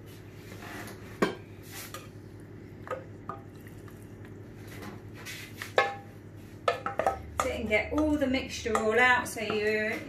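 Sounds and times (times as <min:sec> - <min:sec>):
spoon knocking against dish: 0:06.6 - 0:09.7.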